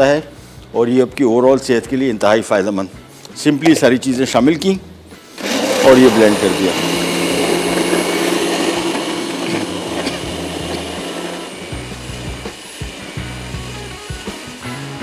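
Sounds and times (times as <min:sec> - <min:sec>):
music: 0:00.0 - 0:15.0
blender motor running: 0:05.4 - 0:15.0.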